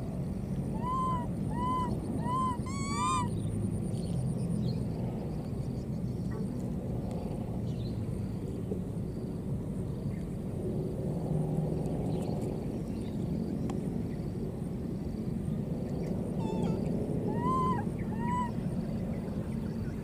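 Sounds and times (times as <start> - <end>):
high chirps of birds or insects: 0.1 - 6.3, 15.4 - 20.0.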